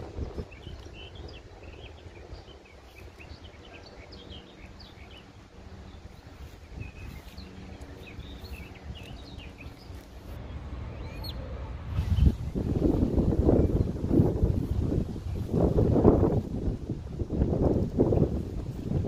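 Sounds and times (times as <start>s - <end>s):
small birds chirping: 0.0s - 16.5s.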